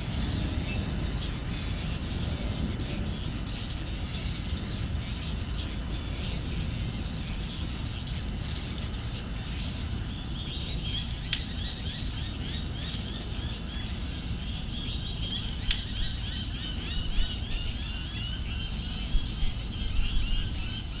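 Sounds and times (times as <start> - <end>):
small birds chirping: 0.0 - 21.0
steady low rumble: 0.0 - 21.0.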